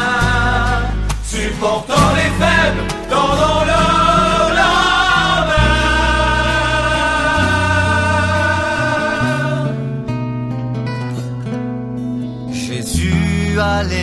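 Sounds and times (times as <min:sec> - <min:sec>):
person singing: 0:00.0 - 0:09.7
bass line: 0:00.0 - 0:14.0.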